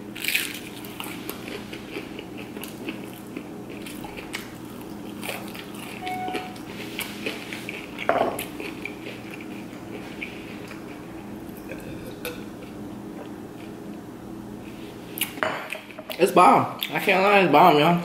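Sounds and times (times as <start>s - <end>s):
chewing crispy food: 0.0s - 14.0s.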